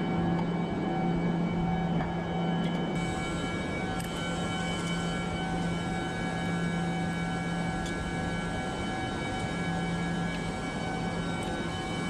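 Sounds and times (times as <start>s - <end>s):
chiller machinery drone: 0.0s - 12.0s.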